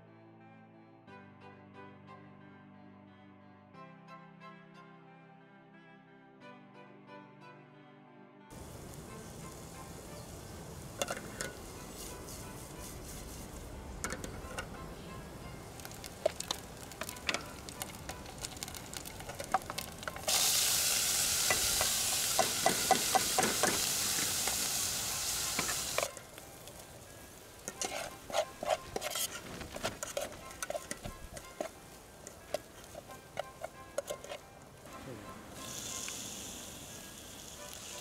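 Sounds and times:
onion sizzling in hot oil: 8.5s - 34.4s, 35.5s - 38.0s
spoon clinking against pot: 11.0s - 11.6s, 27.6s - 34.5s
metal spoon scraping pot: 11.0s - 14.9s, 27.6s - 34.5s.

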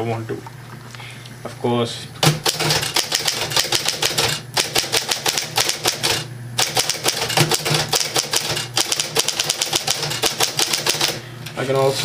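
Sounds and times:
typewriter keystroke clacks: 2.2s - 11.2s
typewriter motor humming: 2.2s - 12.0s.

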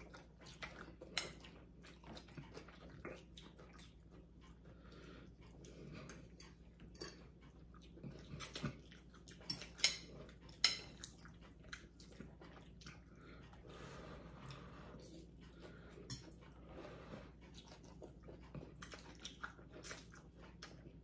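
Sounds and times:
people chewing: 0.0s - 21.0s
cutlery clicking on ceramic bowls: 6.1s - 7.3s, 9.5s - 11.1s, 16.1s - 16.4s.

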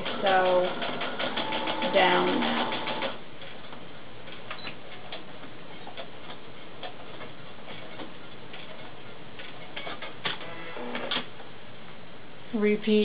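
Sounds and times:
sewing machine running: 0.0s - 3.2s.

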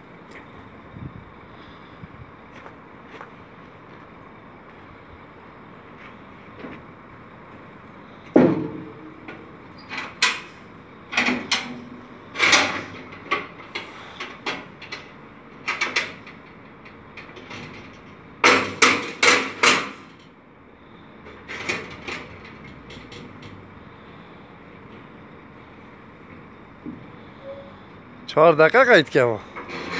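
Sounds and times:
hammer banging on metal doors: 8.3s - 9.4s, 18.4s - 20.1s.

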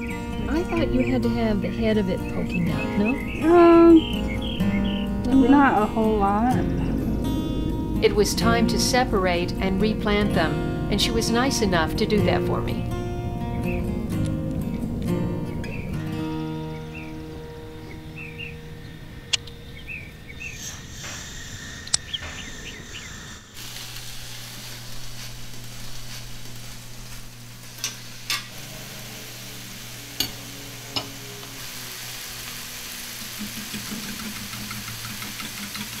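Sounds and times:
faint chirping: 0.0s - 5.8s, 15.5s - 23.6s
vegetables sizzling in a skillet: 23.6s - 36.0s.

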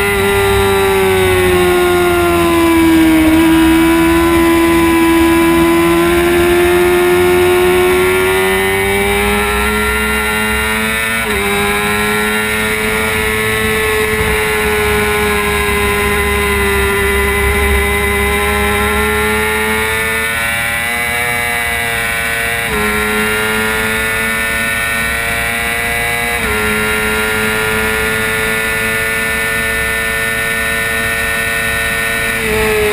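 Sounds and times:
motorcycle engine at high revs: 0.0s - 32.9s.

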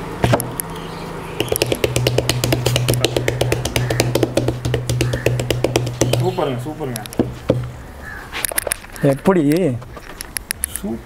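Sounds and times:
clay pot knocking on table: 1.4s - 6.4s
hands patting on pot: 1.4s - 6.4s.

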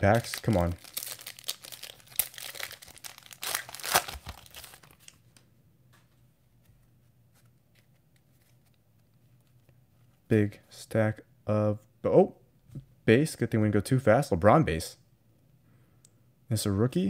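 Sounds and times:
foil wrapper tearing and crinkling: 0.0s - 5.2s
faint clicks of cards handled: 5.0s - 9.8s.

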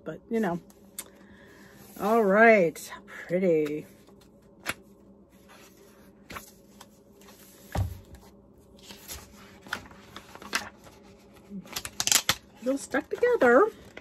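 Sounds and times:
book pages turning: 3.6s - 14.0s.

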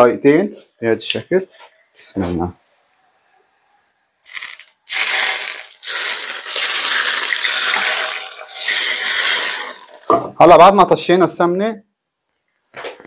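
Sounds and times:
hot oil sizzling on yogurt: 4.2s - 10.1s.

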